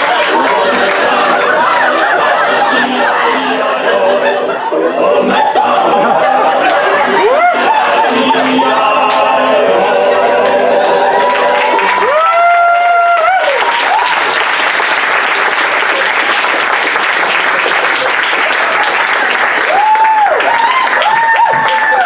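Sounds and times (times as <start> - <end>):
audience applauding and cheering: 0.0 - 3.5, 5.6 - 22.0
audience whoops: 10.8 - 14.7, 17.9 - 22.0.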